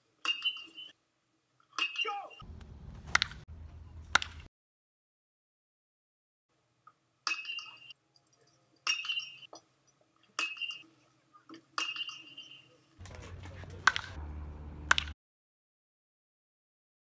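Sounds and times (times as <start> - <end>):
outdoor background noise: 0.0 - 4.5, 6.5 - 15.2
bat cracking on ball: 2.6 - 3.4, 4.1 - 4.5, 13.0 - 14.2, 14.8 - 15.2.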